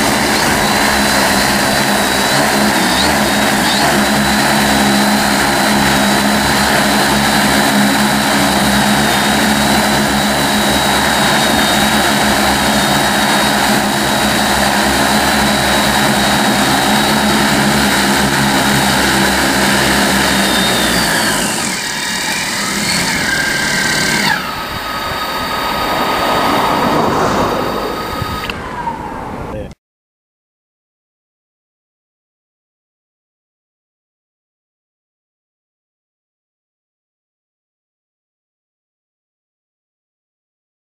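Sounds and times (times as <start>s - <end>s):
drone rotors humming: 0.0s - 29.7s
rotors spinning down: 0.0s - 29.7s.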